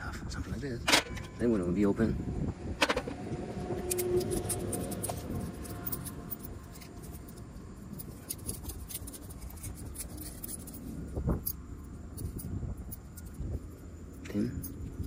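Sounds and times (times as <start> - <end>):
low steady rumble: 0.0 - 15.0
tools clicking and scraping: 2.8 - 15.0.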